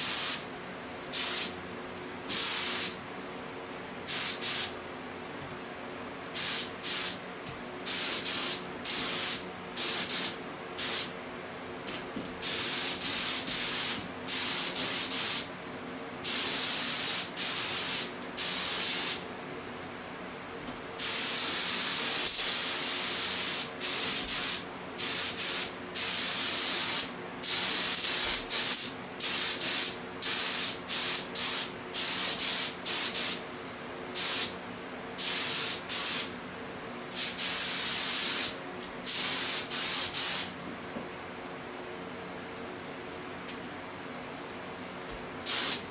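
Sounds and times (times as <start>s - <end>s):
paint spray gun hissing: 0.0s - 0.4s, 1.1s - 1.5s, 2.3s - 3.0s, 4.1s - 4.8s, 6.4s - 7.2s, 7.8s - 11.2s, 12.4s - 15.5s, 16.2s - 19.2s, 21.0s - 33.4s, 34.2s - 34.6s, 35.2s - 36.3s, 37.1s - 40.5s, 45.4s - 45.9s.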